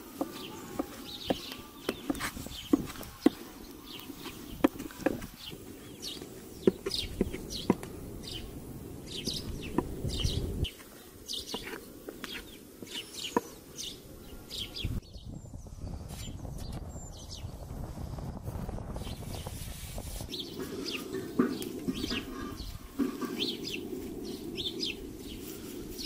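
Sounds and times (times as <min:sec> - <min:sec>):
small birds chirping: 0:00.0 - 0:26.0
metal scraper knocking on wood: 0:00.2 - 0:03.4, 0:06.6 - 0:07.9.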